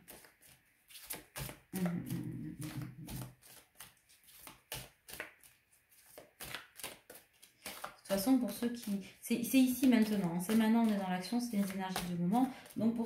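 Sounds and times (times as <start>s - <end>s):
cards being shuffled: 0.0s - 13.0s.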